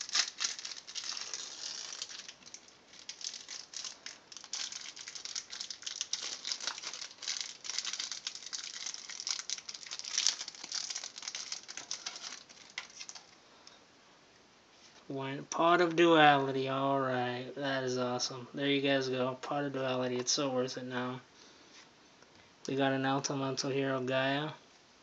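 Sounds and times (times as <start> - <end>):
plastic wrapping crackling: 0.0 - 13.4.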